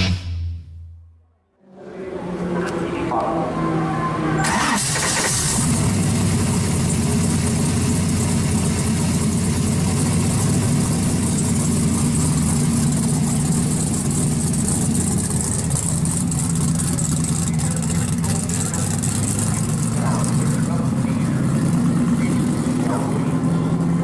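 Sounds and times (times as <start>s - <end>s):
car engine idling: 2.2s - 24.0s.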